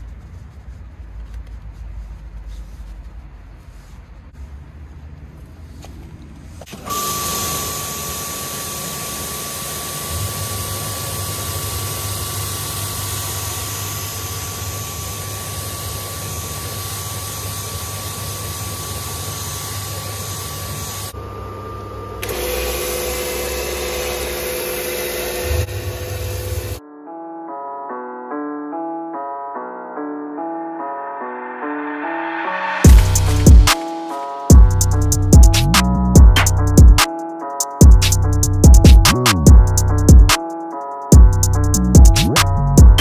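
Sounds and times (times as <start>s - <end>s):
cleaning machine motor running: 6.7s - 26.8s.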